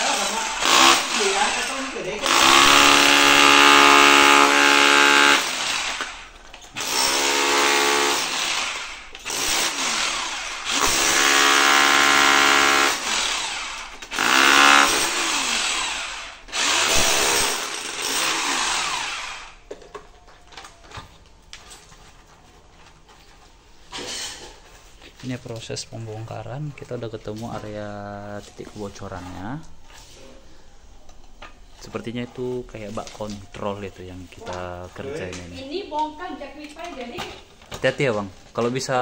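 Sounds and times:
electric hammer breaking tile: 0.0 - 6.2, 6.8 - 15.9, 16.6 - 19.2.

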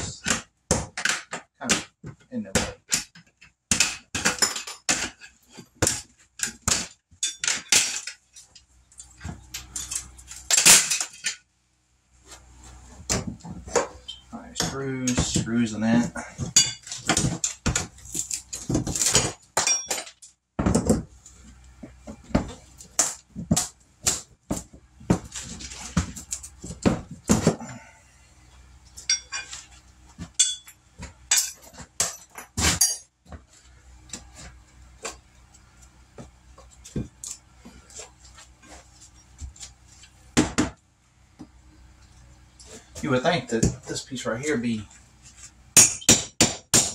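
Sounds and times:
hand tools striking metal: 13.8 - 20.3, 29.0 - 29.6, 30.2 - 33.1, 45.8 - 46.9.

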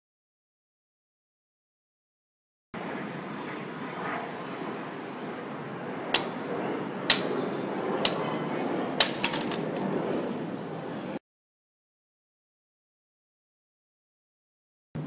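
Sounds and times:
split wood clattering: 9.0 - 9.8.

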